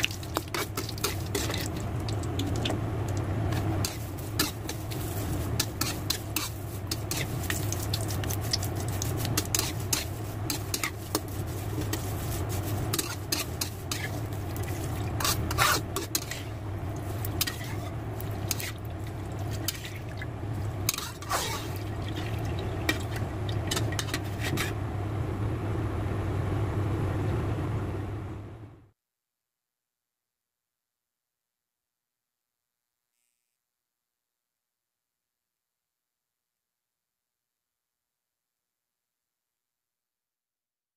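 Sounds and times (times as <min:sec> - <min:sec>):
metal utensils scraping wok: 0:00.0 - 0:02.8, 0:03.5 - 0:24.8
leaves sizzling in hot oil: 0:00.0 - 0:24.8
steady low hum: 0:00.0 - 0:28.9.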